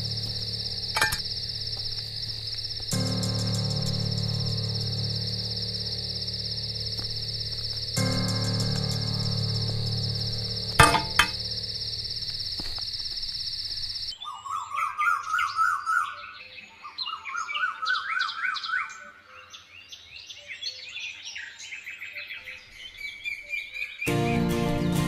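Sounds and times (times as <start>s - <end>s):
high insect trill: 0.0s - 14.2s
birds warbling and chirping: 0.0s - 24.5s.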